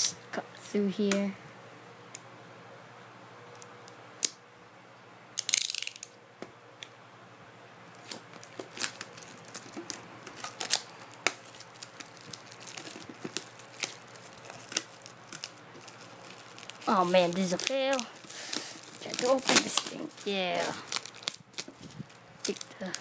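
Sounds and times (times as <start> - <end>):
plastic wrap crinkling: 8.0 - 23.0
blade slicing plastic wrap: 8.1 - 21.8.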